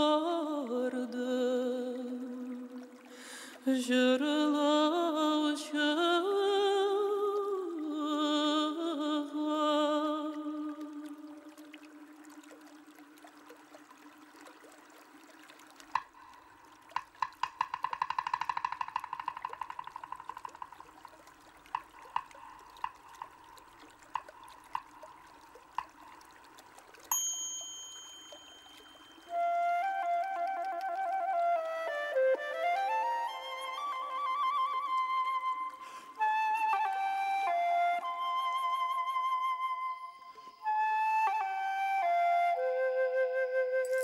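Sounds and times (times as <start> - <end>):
person singing wordless melody: 0.0 - 11.8
drip-like plinks: 10.2 - 29.4
faint steady tone: 21.0 - 29.8.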